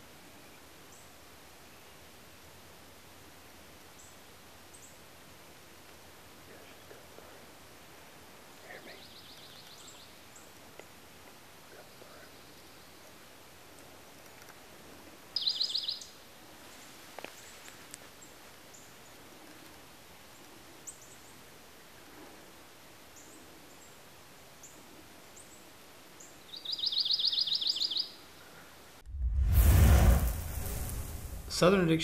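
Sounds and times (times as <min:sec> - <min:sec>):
woodland ambience: 0:00.0 - 0:32.0
songbird trilling: 0:15.4 - 0:16.1, 0:26.5 - 0:28.2
soft high bird chirps: 0:15.4 - 0:16.2, 0:26.2 - 0:28.2.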